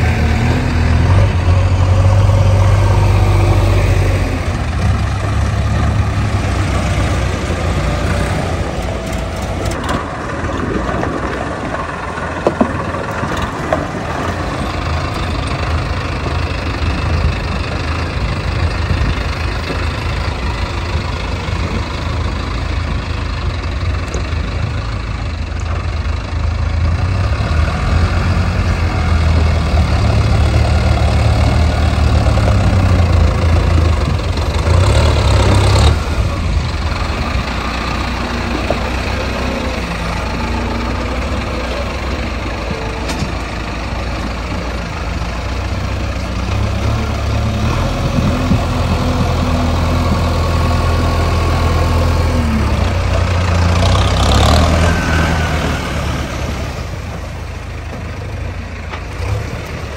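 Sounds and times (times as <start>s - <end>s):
heavy diesel engine running: 0.0s - 59.9s.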